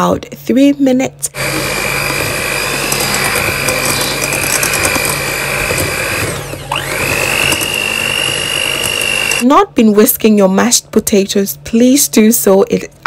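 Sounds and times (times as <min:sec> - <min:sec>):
electric mixer motor whine: 0:01.3 - 0:09.4.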